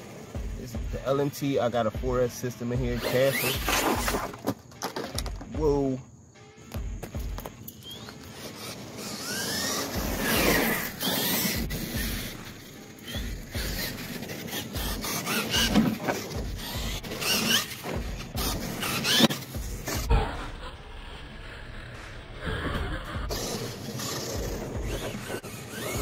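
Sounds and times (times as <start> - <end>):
rc truck electric motor whining: 2.8 - 4.5, 7.7 - 26.0.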